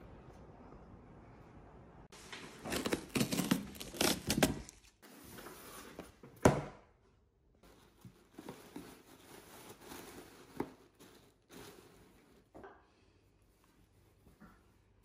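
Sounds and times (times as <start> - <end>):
tissue paper rustling: 2.2 - 6.0, 7.6 - 12.5
blade slitting packing tape: 2.8 - 4.8.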